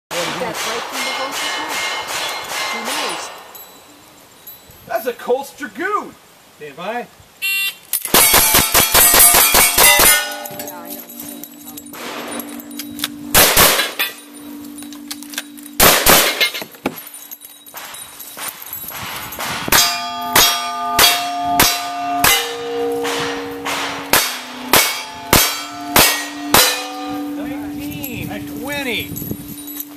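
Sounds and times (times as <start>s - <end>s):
steel target clanging and ringing: 0.1s - 4.7s, 8.0s - 29.9s
rifle shots: 8.1s - 10.3s, 13.3s - 14.0s, 15.8s - 16.6s.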